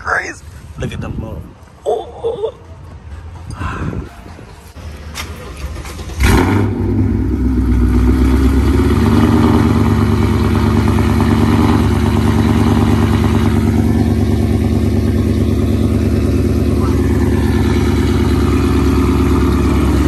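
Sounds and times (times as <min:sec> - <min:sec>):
car engine starting: 0:04.7 - 0:20.0
loud loping engine idle: 0:05.3 - 0:20.0.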